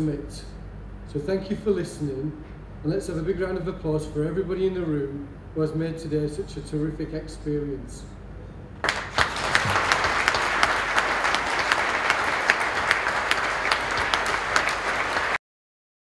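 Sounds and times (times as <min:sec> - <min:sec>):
audience applauding: 0:08.8 - 0:15.4.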